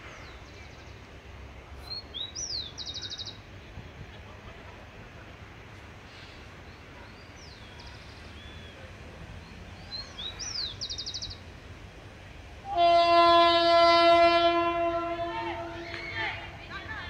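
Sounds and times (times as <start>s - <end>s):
birds chirping: 1.8s - 3.7s, 6.3s - 11.6s
train horn: 12.6s - 16.5s.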